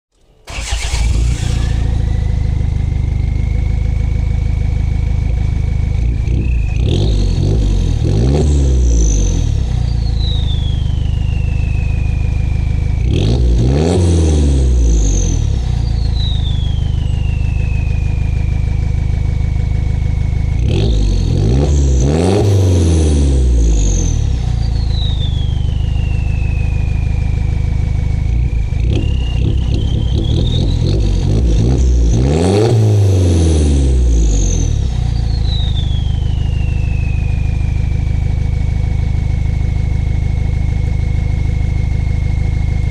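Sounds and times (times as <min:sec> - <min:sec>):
diesel engine idling and revving: 0:00.5 - 0:42.9
turbo whistle: 0:06.2 - 0:14.0, 0:14.8 - 0:19.2, 0:23.7 - 0:32.8, 0:34.2 - 0:38.4.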